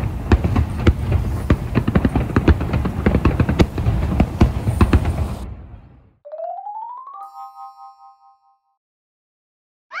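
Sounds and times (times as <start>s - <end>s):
fireworks bangs and crackles: 0.0s - 6.1s.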